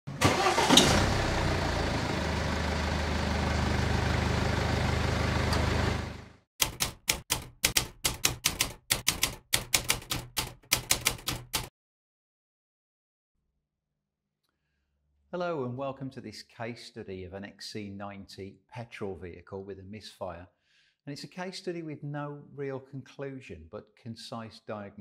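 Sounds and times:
car engine starting and idling: 0:00.1 - 0:06.4
typewriter keystrokes: 0:06.6 - 0:11.7.

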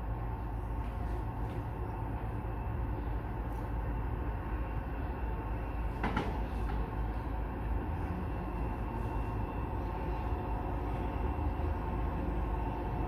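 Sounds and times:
distant diesel locomotive rumble: 0:00.0 - 0:13.0.

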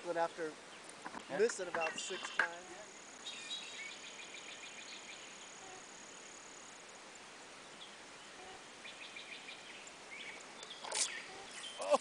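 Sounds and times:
high insect trill: 0:00.1 - 0:12.0.

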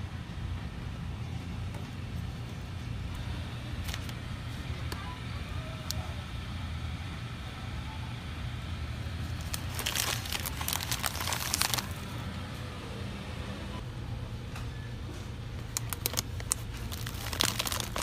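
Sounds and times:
grocery store ambience hum: 0:00.0 - 0:18.0
crinkling crackles: 0:09.3 - 0:12.2, 0:15.6 - 0:18.0.

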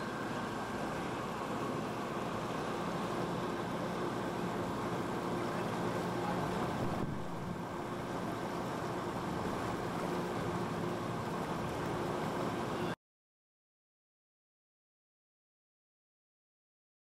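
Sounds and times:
water rushing: 0:00.0 - 0:12.7
ship engine humming: 0:00.0 - 0:13.0.

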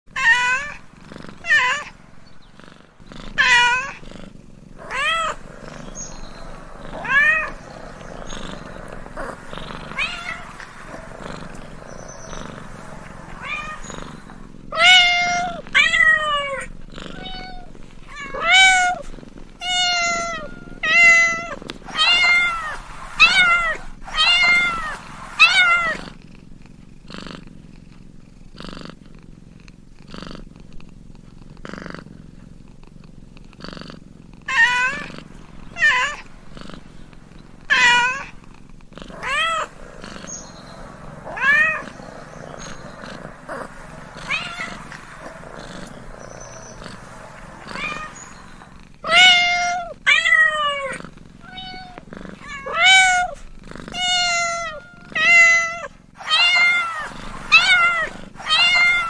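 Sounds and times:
cat purring: 0:00.0 - 0:59.0
cat meowing: 0:00.1 - 0:00.8, 0:01.4 - 0:01.9, 0:03.3 - 0:04.0, 0:04.8 - 0:26.0, 0:34.5 - 0:38.4, 0:39.1 - 0:59.0.

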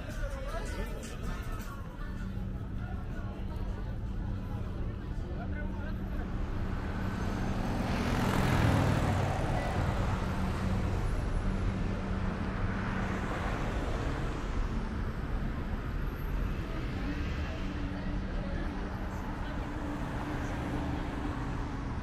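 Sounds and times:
road traffic hum: 0:00.0 - 0:22.0.

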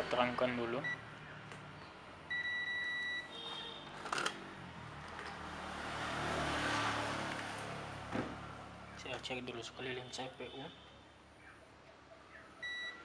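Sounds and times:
multimeter continuity beep: 0:00.8 - 0:01.0, 0:02.3 - 0:03.3, 0:12.6 - 0:13.0.

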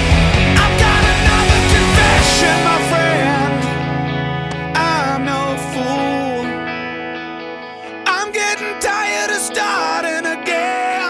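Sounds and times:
music with held chords and sliding melody: 0:00.0 - 0:11.0.

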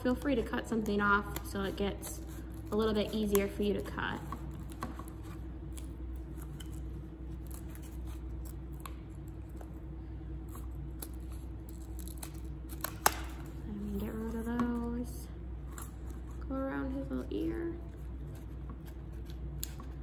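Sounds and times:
scissors snipping paper: 0:00.0 - 0:06.8
low room hum: 0:00.0 - 0:20.0.

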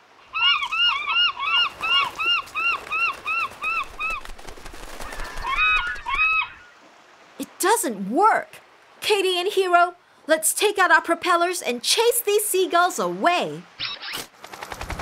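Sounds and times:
cartoon seagull squawks: 0:05.2 - 0:06.7.

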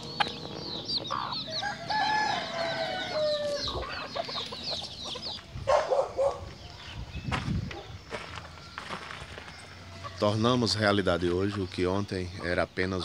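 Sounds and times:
chicks peeping: 0:00.0 - 0:13.0
rooster crowing: 0:01.1 - 0:04.2, 0:08.4 - 0:10.4.

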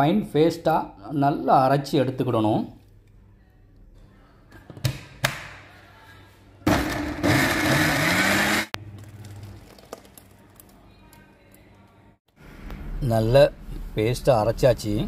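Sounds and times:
mixer grinder running: 0:06.7 - 0:08.8.

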